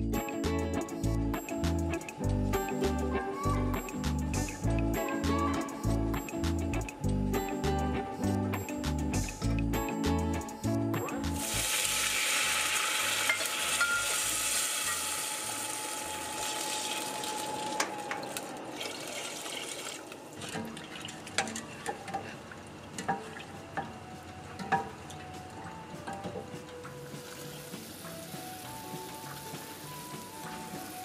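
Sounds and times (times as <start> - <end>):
water hissing in hot pot: 11.4 - 17.8, 26.5 - 31.0
water pouring: 11.4 - 23.6.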